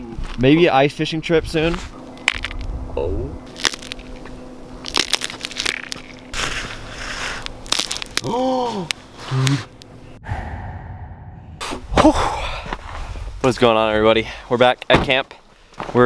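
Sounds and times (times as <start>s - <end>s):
ice cracking underfoot: 3.5s - 9.0s
voiced exclamation: 8.2s - 9.7s.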